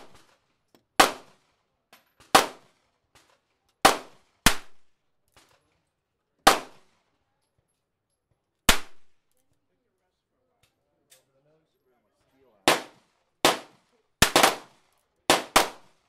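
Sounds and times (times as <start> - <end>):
gunshots: 1.0 - 1.4, 2.3 - 2.8, 3.8 - 4.9, 6.4 - 6.9, 8.7 - 9.1, 12.6 - 16.0.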